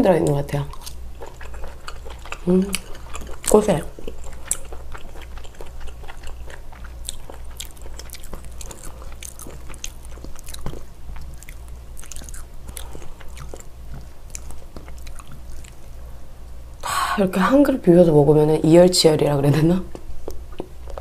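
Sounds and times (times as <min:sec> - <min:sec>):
person chewing food: 0:00.2 - 0:16.6.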